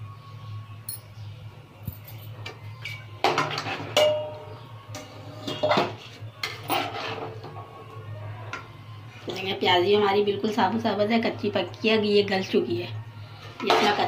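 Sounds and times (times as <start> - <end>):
metallic clinks and ringing: 0.8 - 1.2, 1.8 - 2.4
metal spoon scraping pot: 5.4 - 7.5.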